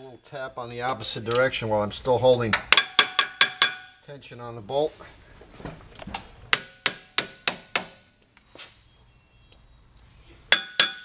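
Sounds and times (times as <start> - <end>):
hammer striking metal: 2.5 - 4.0, 6.5 - 8.0, 10.5 - 11.0.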